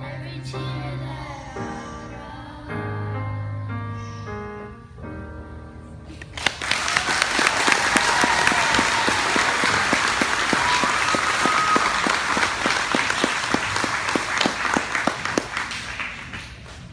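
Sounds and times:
audience applause: 6.3 - 16.9
audience cheering: 6.4 - 16.4.

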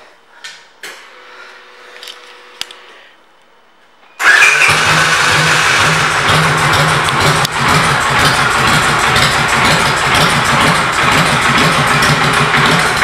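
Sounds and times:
motorcycle engine idling: 5.7 - 13.0.

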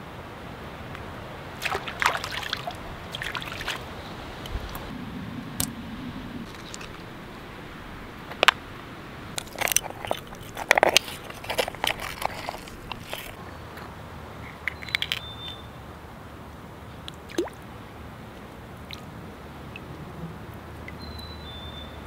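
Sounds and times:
stream trickling: 0.0 - 22.0
clam shells clicking and scraping: 6.4 - 7.4, 9.4 - 13.4, 14.4 - 15.6.

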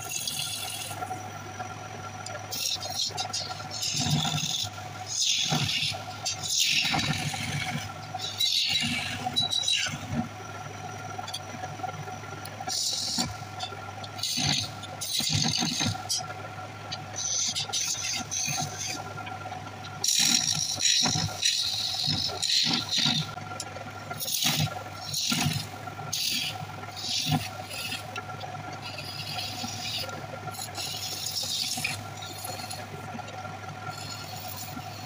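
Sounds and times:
wood lathe humming: 0.0 - 35.0
chisel scraping spinning wood: 2.4 - 10.4, 24.1 - 35.0.

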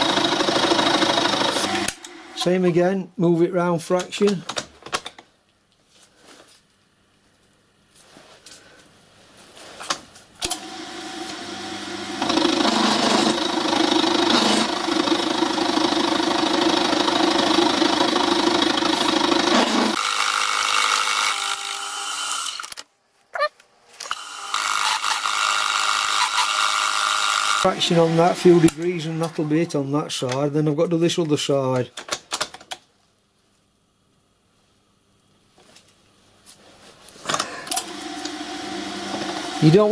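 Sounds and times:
milling machine cutting metal: 0.0 - 2.6, 10.5 - 15.4, 24.1 - 29.8, 37.8 - 39.9.

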